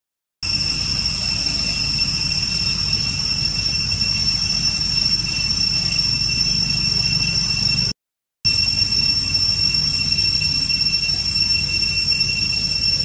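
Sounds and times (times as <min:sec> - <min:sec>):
cicadas droning: 0:00.4 - 0:07.9, 0:08.5 - 0:13.0.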